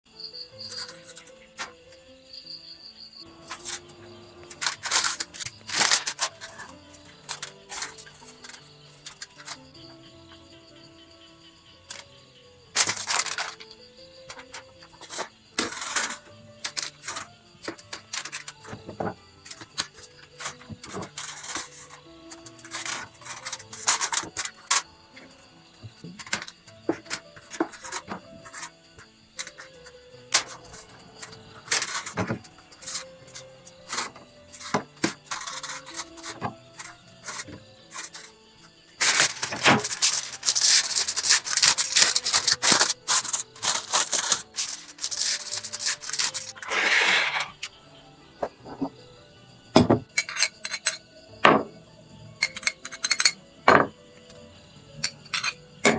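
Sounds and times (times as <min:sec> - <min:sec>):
soft background music: 0:00.1 - 0:55.9
aluminium foil crinkling: 0:03.4 - 0:09.6, 0:12.8 - 0:13.6, 0:14.3 - 0:18.6, 0:19.4 - 0:24.9, 0:29.4 - 0:38.3, 0:39.0 - 0:47.2
vegetable pieces tapping on foil: 0:04.5 - 0:09.6, 0:39.0 - 0:46.6.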